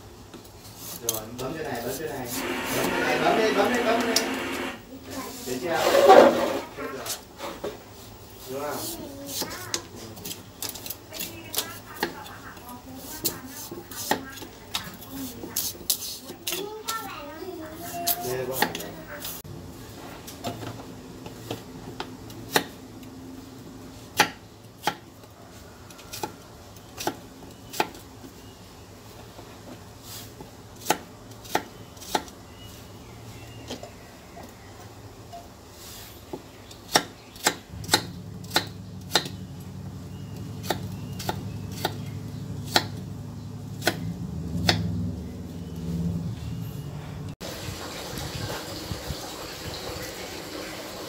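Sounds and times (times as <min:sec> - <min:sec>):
knife chopping on wooden block: 0:13.2 - 0:15.0, 0:22.5 - 0:22.8, 0:24.1 - 0:25.1, 0:30.8 - 0:32.4, 0:36.3 - 0:39.4, 0:40.5 - 0:43.0, 0:43.8 - 0:44.8.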